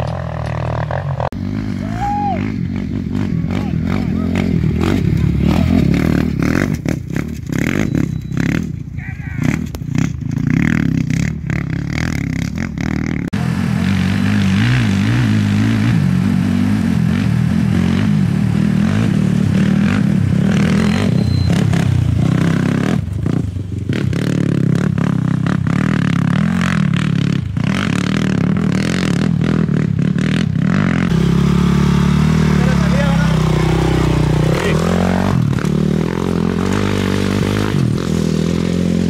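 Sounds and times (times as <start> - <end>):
race vehicle engine passing: 31.0 - 39.0.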